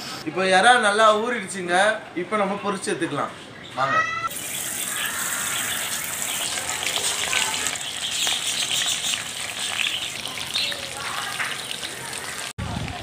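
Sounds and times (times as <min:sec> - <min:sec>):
oil sizzling and crackling: 0:04.3 - 0:13.0.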